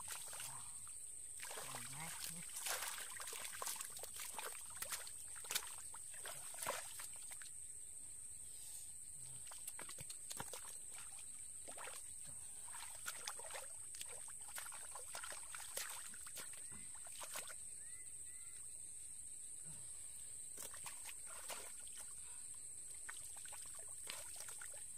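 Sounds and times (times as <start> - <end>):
hands sloshing through muddy water: 0.0 - 0.8, 1.4 - 7.5, 9.4 - 17.6, 20.6 - 24.9.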